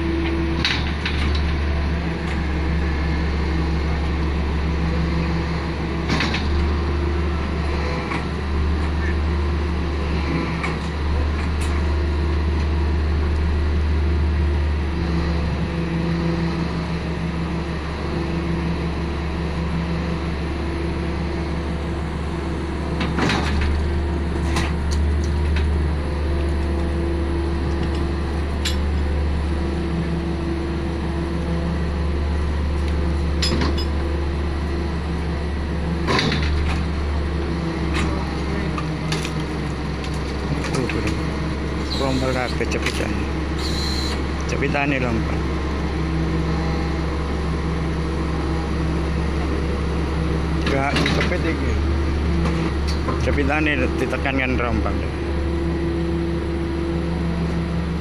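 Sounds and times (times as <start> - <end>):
higher machine tone: 43.5 - 44.3.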